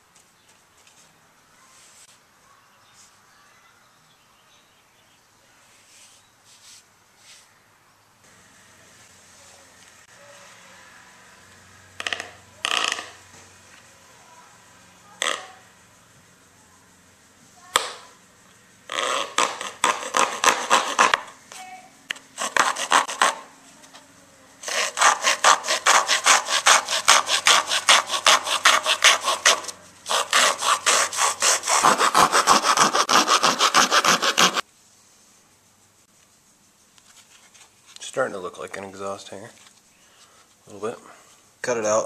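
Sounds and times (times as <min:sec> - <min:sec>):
hacksaw sawing foam board: 0:18.9 - 0:21.3, 0:22.1 - 0:23.5, 0:24.6 - 0:34.6.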